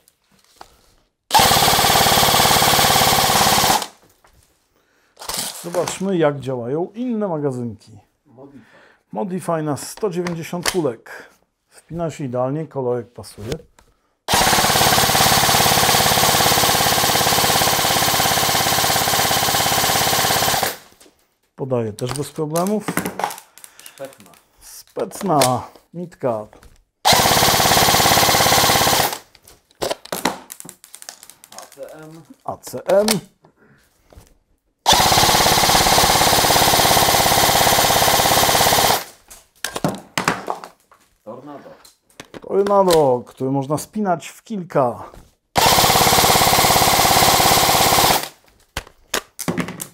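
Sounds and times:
airsoft rifle full-auto burst: 1.3 - 4.0, 14.3 - 20.9, 27.0 - 29.3, 34.9 - 39.2, 45.6 - 48.4.

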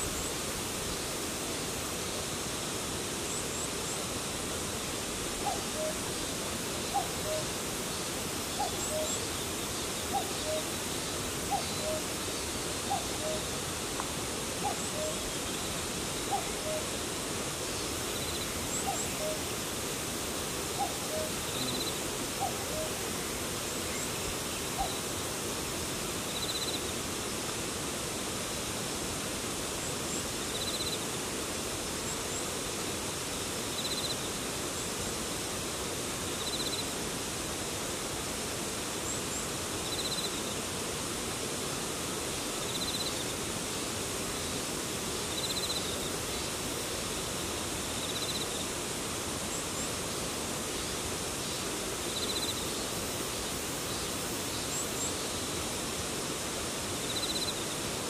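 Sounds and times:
insect chirping: 0.0 - 27.0, 29.8 - 31.2, 33.3 - 35.0, 36.2 - 37.0, 38.9 - 40.7, 42.0 - 58.0
steady hiss: 0.0 - 58.0
cuckoo calling: 5.4 - 6.0, 6.9 - 7.5, 10.1 - 10.7, 12.9 - 13.5, 14.6 - 15.3, 16.3 - 16.9, 20.8 - 23.1, 24.8 - 25.0.

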